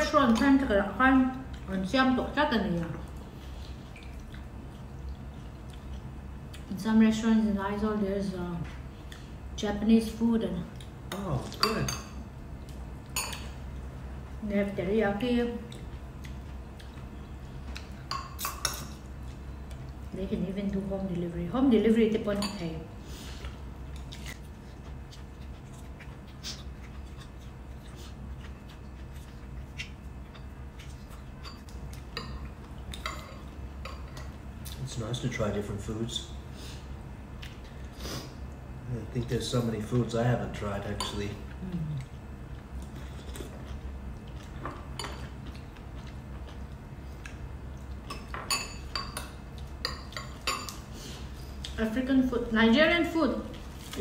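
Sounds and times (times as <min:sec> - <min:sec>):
chewing: 0:03.0 - 0:06.7, 0:15.6 - 0:18.0, 0:23.4 - 0:33.6, 0:41.5 - 0:48.3.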